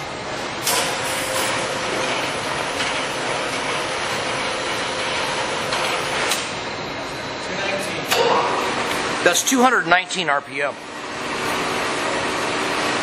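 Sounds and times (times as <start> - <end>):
lathe gear noise: 0.6 - 6.5.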